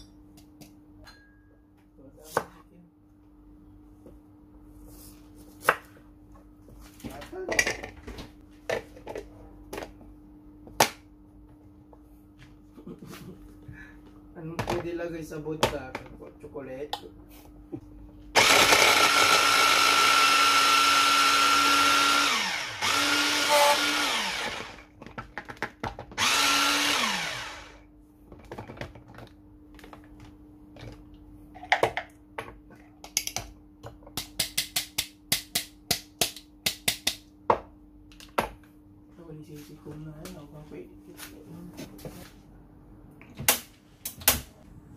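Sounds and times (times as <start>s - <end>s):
blender chopper motor running: 18.4s - 24.9s, 26.2s - 27.8s.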